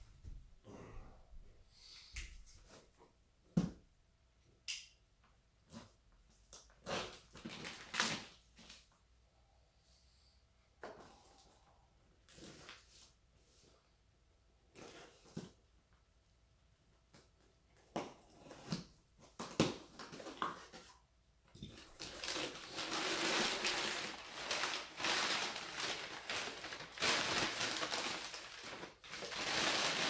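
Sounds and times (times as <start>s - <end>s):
packaging rustling and crinkling: 6.8s - 8.9s, 21.6s - 30.0s.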